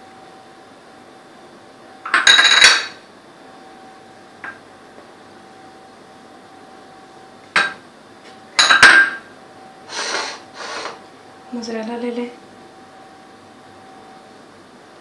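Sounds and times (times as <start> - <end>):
faint steady hum: 0.0 - 15.0
dishes clinking and clattering: 2.1 - 3.0, 8.6 - 9.2.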